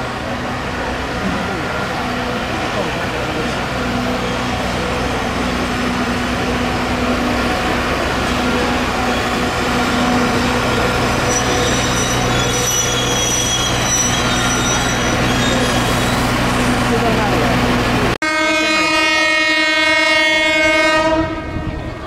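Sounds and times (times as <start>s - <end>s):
diesel locomotive engine running: 0.0s - 20.5s
train wheels squealing: 8.6s - 16.7s.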